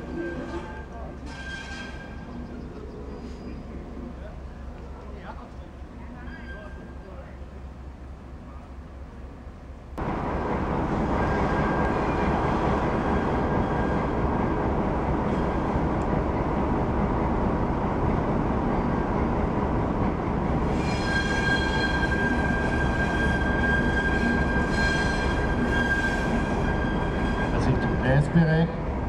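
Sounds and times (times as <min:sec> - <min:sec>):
diesel locomotive engine rumble: 0:00.0 - 0:29.0
steady high-pitched squeal: 0:06.0 - 0:07.2, 0:20.6 - 0:28.2.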